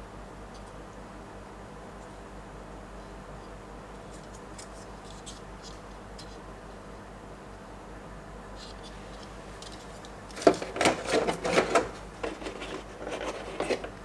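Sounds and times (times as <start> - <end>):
toy packaging clicks and rustles: 9.7 - 13.9.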